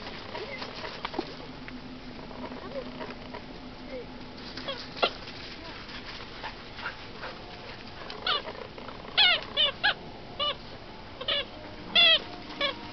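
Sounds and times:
puppies yipping: 6.8s - 10.6s, 11.2s - 12.9s.

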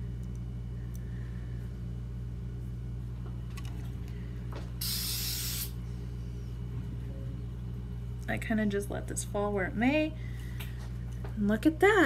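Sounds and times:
steady low hum: 0.0s - 12.0s
aerosol spray hiss: 4.8s - 5.7s.

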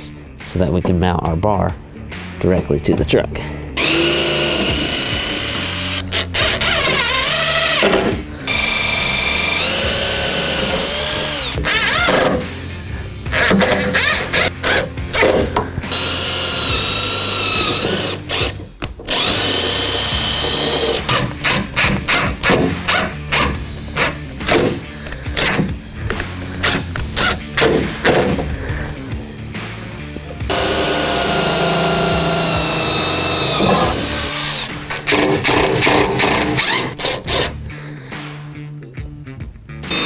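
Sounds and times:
cordless drill motor whine: 3.8s - 7.8s, 8.5s - 11.6s, 15.9s - 18.5s, 19.1s - 20.9s, 30.5s - 34.7s.

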